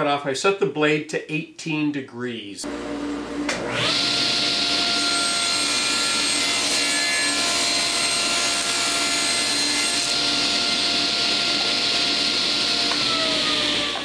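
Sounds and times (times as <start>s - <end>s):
table saw cutting wood: 3.5s - 14.0s
saw blade whine: 3.7s - 14.0s.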